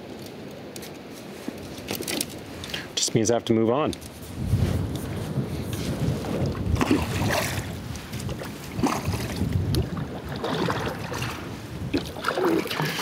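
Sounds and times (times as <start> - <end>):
wind rumble on microphone: 1.2 - 13.0
kayak paddle splashing: 6.4 - 13.0.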